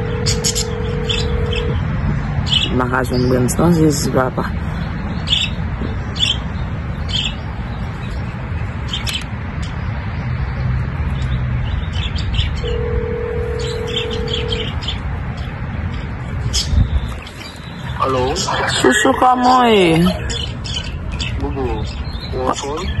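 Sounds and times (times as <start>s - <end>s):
telephone ringback tone: 0.0s - 1.8s, 12.6s - 14.7s
steady low rumble: 0.0s - 8.9s
caged birds chirping: 0.0s - 23.0s.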